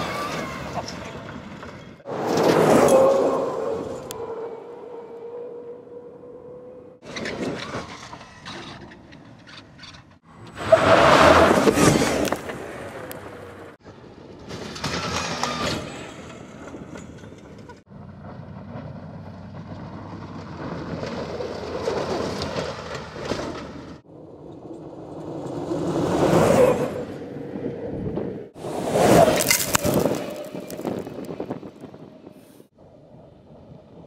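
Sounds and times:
tyres on sand and gravel: 0:00.0 - 0:32.8
wind noise: 0:24.1 - 0:34.0.

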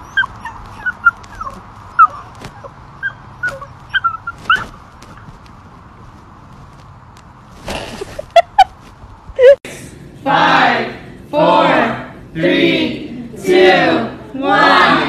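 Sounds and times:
puppy whimpering: 0:00.0 - 0:04.8.

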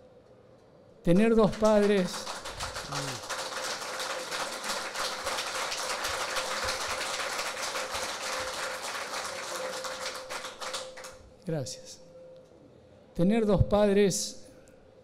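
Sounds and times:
audience applauding: 0:01.1 - 0:11.2.

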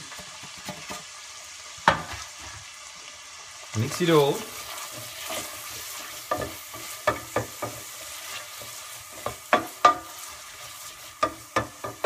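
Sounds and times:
vegetables sizzling in pot: 0:00.0 - 0:12.0
spoon knocking against pot: 0:09.2 - 0:10.1, 0:11.2 - 0:12.0.

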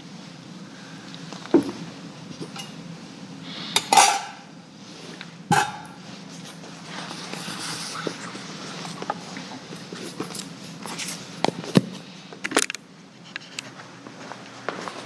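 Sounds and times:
metal vessels clinking: 0:02.4 - 0:02.8, 0:03.8 - 0:04.5, 0:05.5 - 0:06.0.

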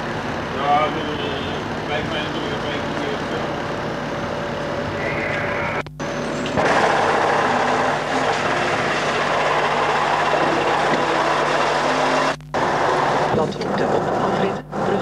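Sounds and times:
truck engine running: 0:00.0 - 0:15.0.

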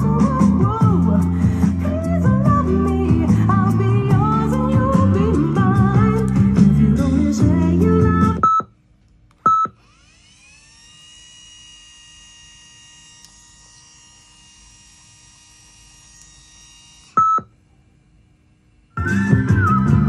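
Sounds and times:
music playback: 0:00.0 - 0:08.4, 0:19.0 - 0:20.0
tape transport whine: 0:18.9 - 0:20.0.

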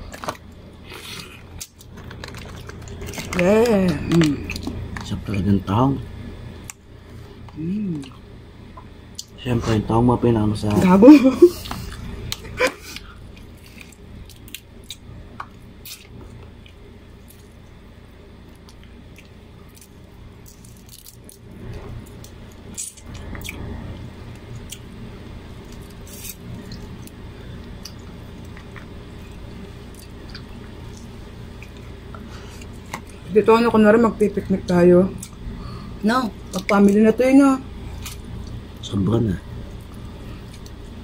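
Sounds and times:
low steady hum: 0:00.0 - 0:41.0
chewing: 0:00.2 - 0:03.4
crab shell cracking: 0:01.5 - 0:05.1, 0:18.6 - 0:21.5.

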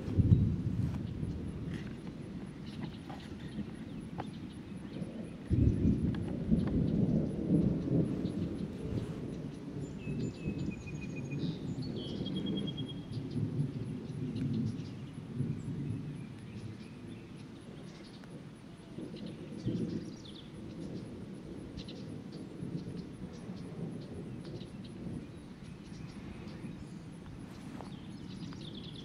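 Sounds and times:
thunder rumbling: 0:00.0 - 0:29.0.

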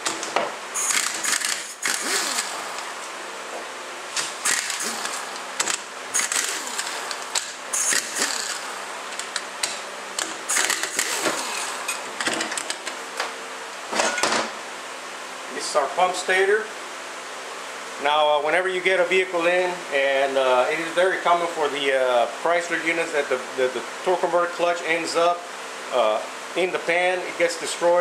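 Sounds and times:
hand ratchet clicking: 0:00.0 - 0:02.9, 0:04.2 - 0:12.7.

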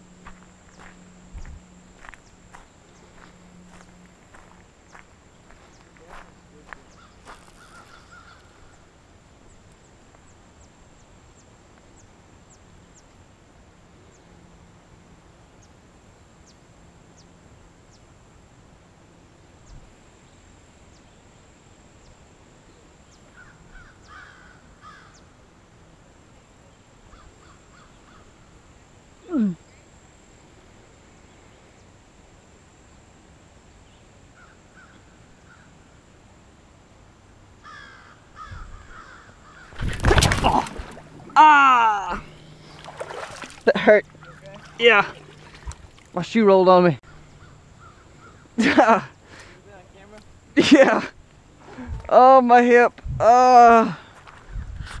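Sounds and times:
distant bird calls: 0:00.0 - 0:13.2, 0:22.0 - 0:25.5, 0:26.3 - 0:30.0, 0:33.8 - 0:36.0, 0:37.6 - 0:50.5.

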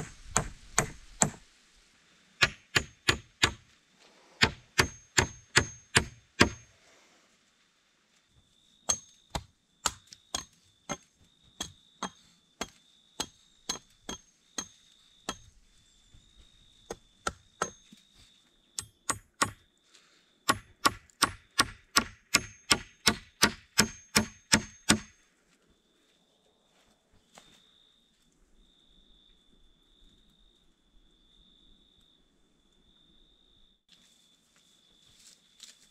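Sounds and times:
hatchet chopping wood: 0:00.0 - 0:01.4, 0:02.4 - 0:03.7, 0:04.4 - 0:06.7, 0:08.9 - 0:15.6, 0:16.9 - 0:17.9, 0:18.8 - 0:19.6, 0:20.5 - 0:25.2.

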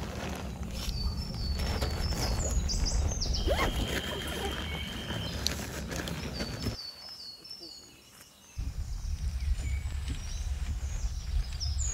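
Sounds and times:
birds chirping: 0:00.5 - 0:11.9
high whistled notes: 0:03.4 - 0:05.3.

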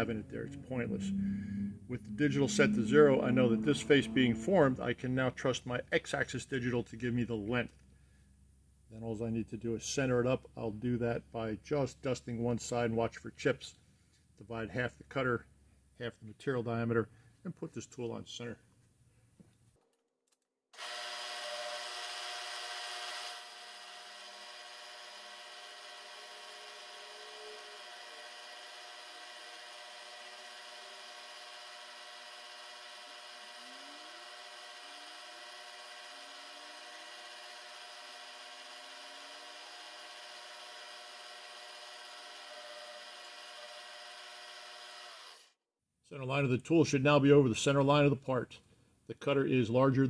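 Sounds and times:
milling machine whirring: 0:24.2 - 0:45.4.

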